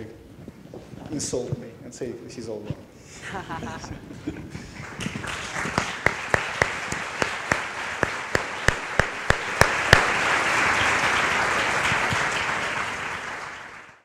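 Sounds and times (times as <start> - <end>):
audience applauding: 4.4 - 14.0.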